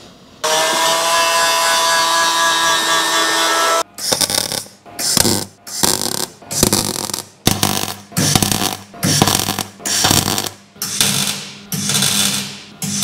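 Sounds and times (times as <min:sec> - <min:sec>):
welder arc crackling: 0:04.0 - 0:13.0.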